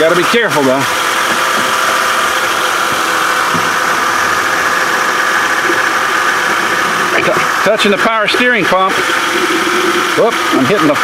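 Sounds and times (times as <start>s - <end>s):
belt and pulleys whirring: 0.0s - 11.0s
car engine idling: 0.0s - 11.0s.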